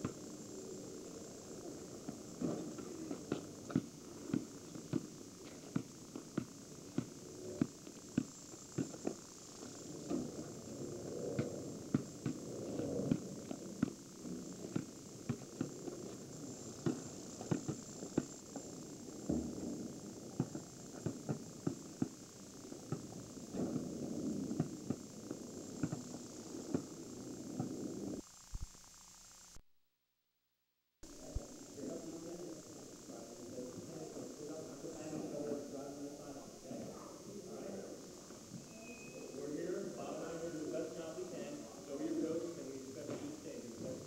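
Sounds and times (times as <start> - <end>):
basketball bouncing on asphalt: 2.0 - 10.3, 11.4 - 18.5, 19.2 - 19.7, 20.4 - 22.2, 24.5 - 25.1, 25.8 - 26.1, 26.7 - 26.9.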